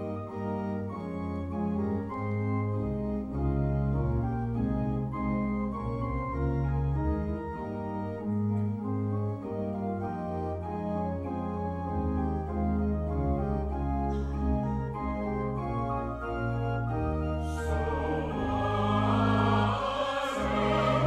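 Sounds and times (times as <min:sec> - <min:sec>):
organ playing chords: 0:00.0 - 0:21.0
choir singing: 0:16.6 - 0:21.0.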